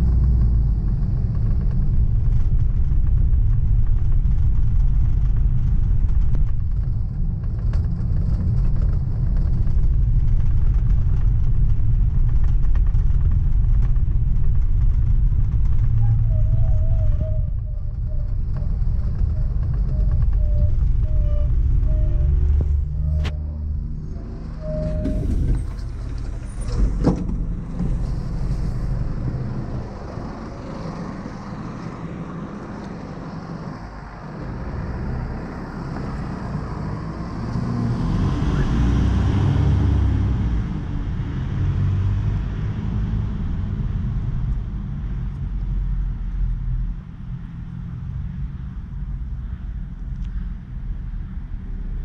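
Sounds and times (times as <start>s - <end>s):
bus diesel engine rumbling: 0.0s - 52.0s.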